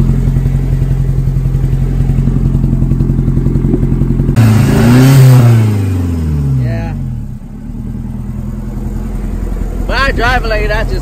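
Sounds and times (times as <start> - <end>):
wind or road noise rush: 0.0 - 6.4
car engine: 0.0 - 11.0.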